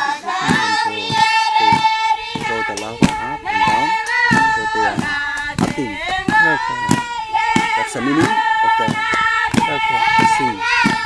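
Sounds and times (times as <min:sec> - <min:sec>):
sharp hand claps: 0:00.0 - 0:11.0
women and girls chanting: 0:00.0 - 0:11.0.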